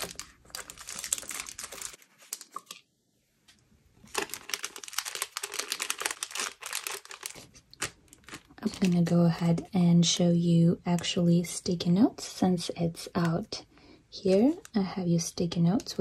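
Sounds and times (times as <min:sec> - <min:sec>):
plastic packaging crinkling: 0:00.0 - 0:02.8, 0:04.0 - 0:09.7, 0:14.2 - 0:16.0.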